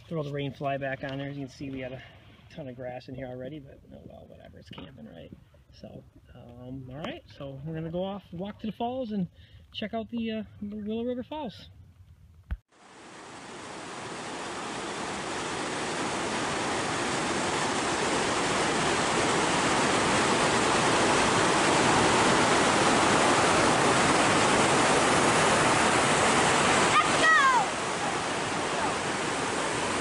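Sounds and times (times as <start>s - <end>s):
waterfall rushing water: 12.8s - 30.0s.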